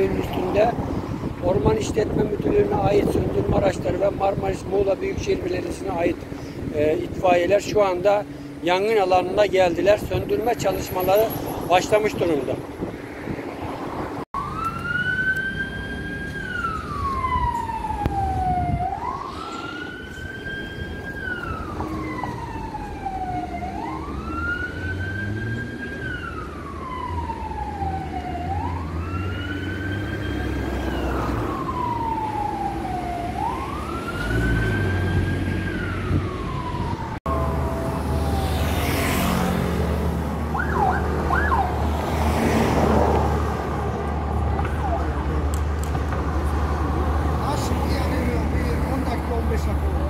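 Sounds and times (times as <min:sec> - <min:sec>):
fire engine siren wailing: 0:14.4 - 0:45.9.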